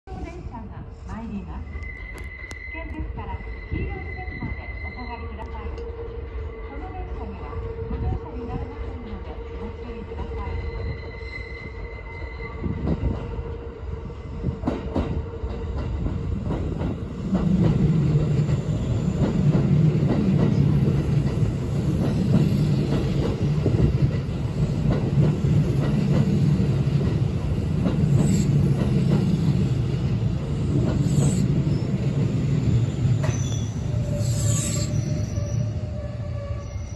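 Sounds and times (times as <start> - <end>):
electric train passing: 1.5 - 36.9
high brake squeals: 31.0 - 31.9, 33.2 - 36.9.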